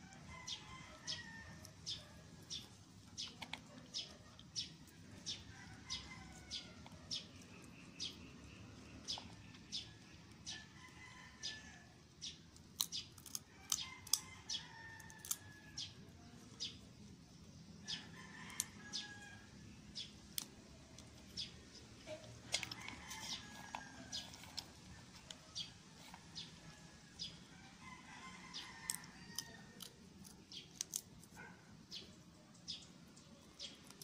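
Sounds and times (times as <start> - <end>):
peanuts crunched and chewed: 0.0 - 34.0
small birds calling: 0.1 - 16.8.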